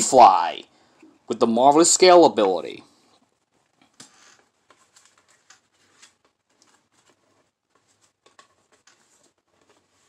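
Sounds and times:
trading cards rustling: 3.9 - 10.0.

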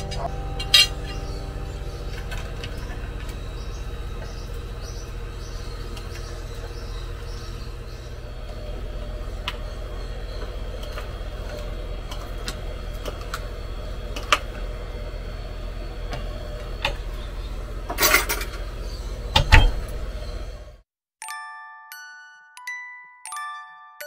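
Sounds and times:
bell-like music notes: 0.0 - 5.4, 21.2 - 24.0
steady low hum: 0.0 - 20.8.

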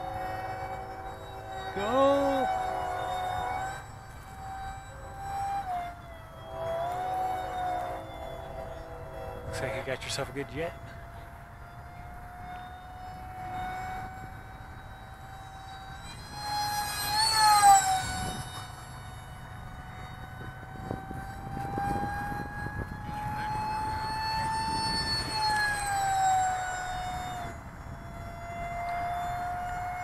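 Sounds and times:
model jet fan whining: 0.0 - 30.0.

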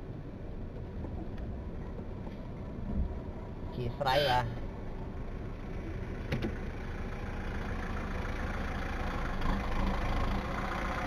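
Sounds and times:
road noise: 0.0 - 11.0
vehicle engine running: 4.6 - 11.0.

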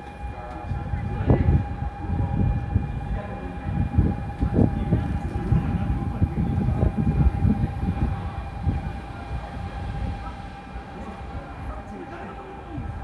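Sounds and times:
platform departure bell ringing: 0.0 - 13.0
low rumble: 0.3 - 13.0.

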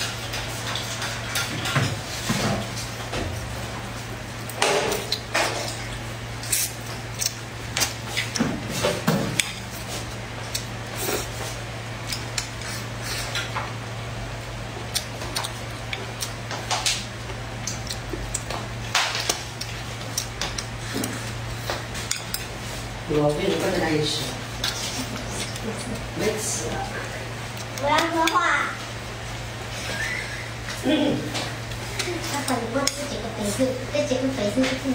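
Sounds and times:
steady low hum: 0.0 - 34.9
person chewing: 4.4 - 23.1, 24.5 - 28.2.

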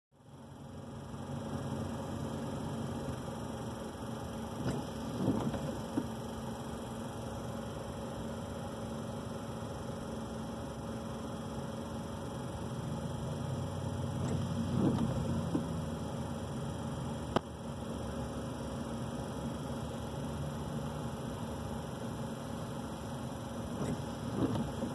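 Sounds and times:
car cabin hum idling: 0.2 - 24.9.

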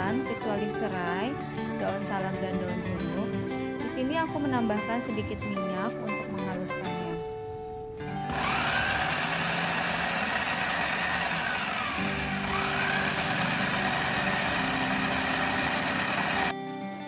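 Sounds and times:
electric chopper motor whirring: 8.3 - 16.5.

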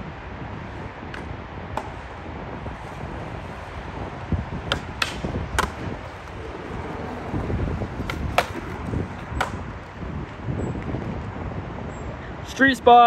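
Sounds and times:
skateboard wheels rolling on concrete: 0.0 - 13.0
skateboard wooden clacks: 1.1 - 3.9, 4.6 - 10.4.

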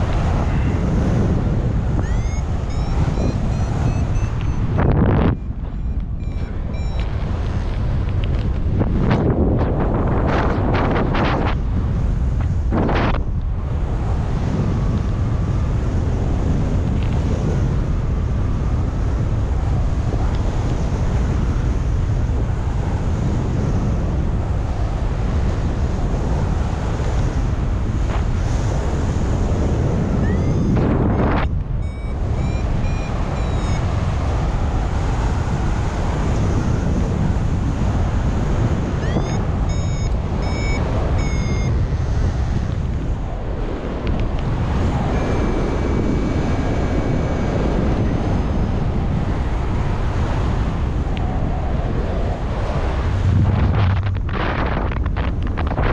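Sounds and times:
wind buffeting microphone: 0.0 - 55.9
short high beeps: 2.0 - 7.2, 30.2 - 34.0, 39.0 - 42.0, 45.1 - 46.0.

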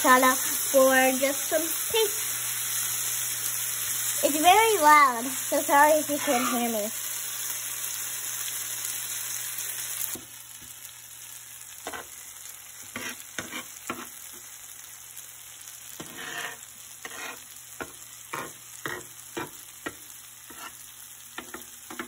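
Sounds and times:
fish sizzling in oil: 0.0 - 22.0
spatula scraping tray: 6.0 - 6.9, 12.9 - 14.1, 16.0 - 17.5, 18.3 - 19.5, 20.5 - 20.8.

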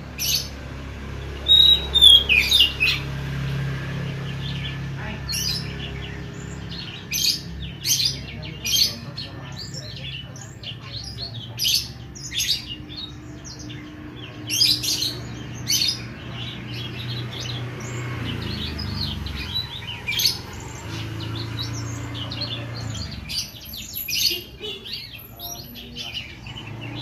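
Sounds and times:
bird singing chirps and whistles: 1.3 - 3.2.

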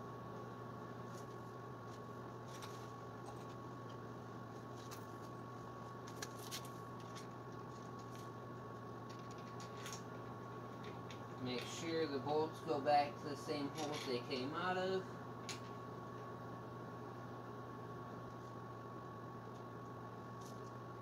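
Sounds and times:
steady background hum: 0.0 - 21.0
hand tools and metal parts clinking: 13.6 - 14.5.

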